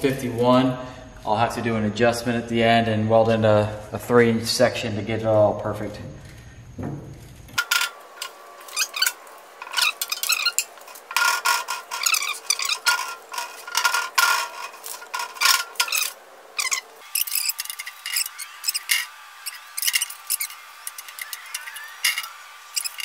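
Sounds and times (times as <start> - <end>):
steel strip scraping on metal brake: 7.6 - 23.0.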